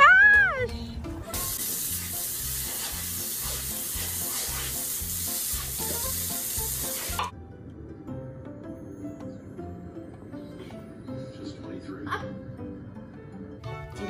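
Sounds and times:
hose spraying water on concrete: 1.3s - 7.3s.

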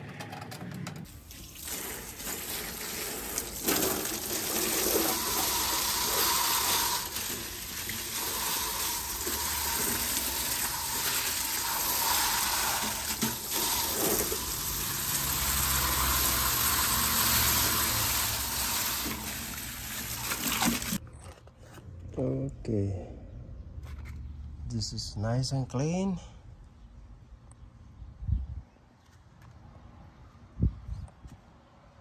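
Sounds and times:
hose water splashing on metal: 1.1s - 21.0s.

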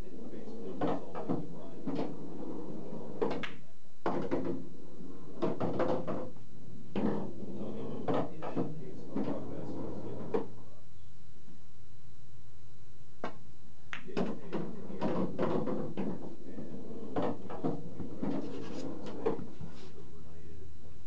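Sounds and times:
pool balls clacking: 0.4s - 10.5s, 13.2s - 19.8s.

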